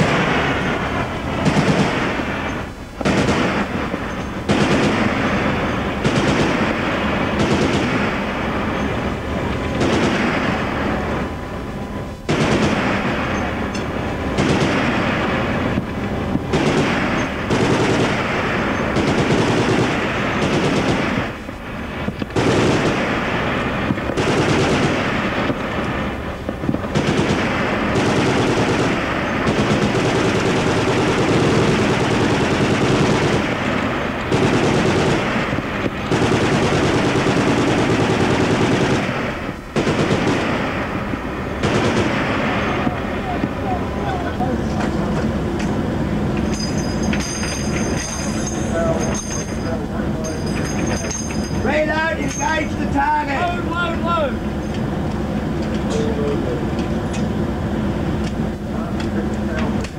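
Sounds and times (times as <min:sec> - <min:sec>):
machine gun firing bursts: 0:00.0 - 0:11.0, 0:12.3 - 0:15.9, 0:16.5 - 0:42.8.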